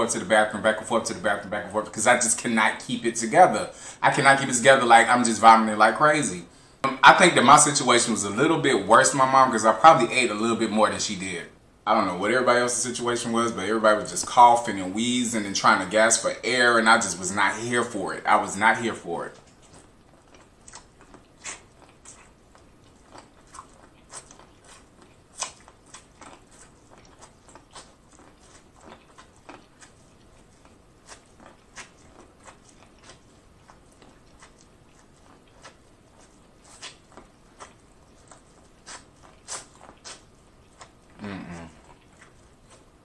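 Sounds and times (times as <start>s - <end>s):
crunchy chewing of corn: 13.0s - 43.0s.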